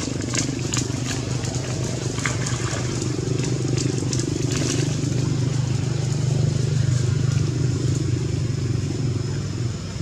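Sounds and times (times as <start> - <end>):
faint splashing: 0.0 - 8.4
low engine hum: 0.0 - 10.0.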